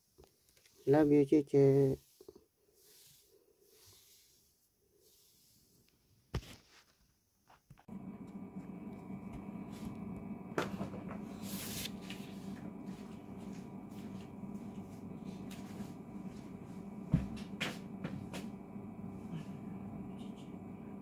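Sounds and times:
low steady hum: 7.9s - 21.0s.

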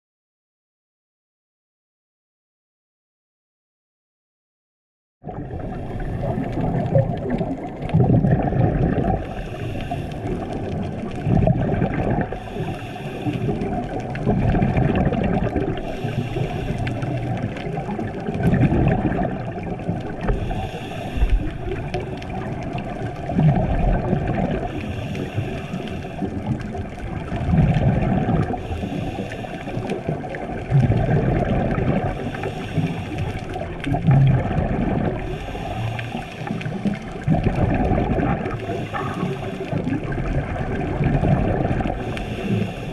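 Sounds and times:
gurgling exhaust bubbles: 5.2s - 42.9s
regulator breathing hiss: 9.2s - 10.4s, 12.4s - 13.6s, 15.8s - 17.2s, 20.4s - 22.4s, 24.7s - 26.4s, 28.6s - 30.1s, 32.1s - 33.6s, 35.2s - 36.8s, 38.5s - 39.8s, 42.0s - 42.9s.

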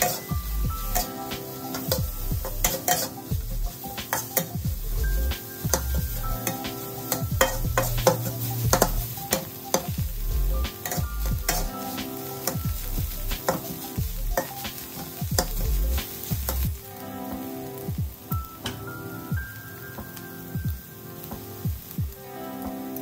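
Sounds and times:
spatula scraping a wok: 0.0s - 16.7s
food sizzling: 0.0s - 23.0s.

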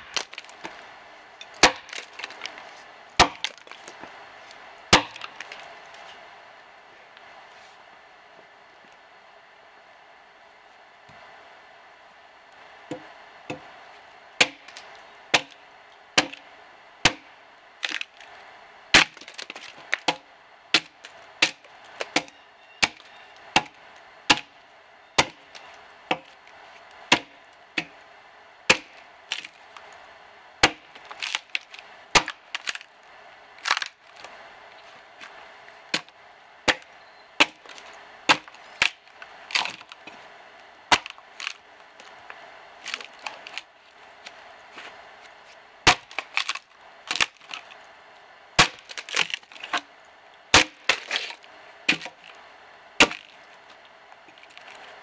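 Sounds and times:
axe chopping into log: 1.6s - 2.4s, 3.2s - 3.7s, 4.9s - 5.3s, 14.4s - 14.7s, 15.3s - 15.6s, 16.2s - 16.4s, 17.0s - 18.1s, 19.0s - 23.0s, 23.6s - 24.5s, 25.2s - 25.5s, 26.1s - 26.3s, 27.1s - 28.0s, 28.7s - 29.5s, 30.6s - 31.5s, 32.2s - 32.8s, 35.9s - 36.1s, 36.7s - 39.0s, 45.9s - 47.3s, 48.6s - 49.8s, 50.5s - 52.2s, 53.0s - 53.3s.

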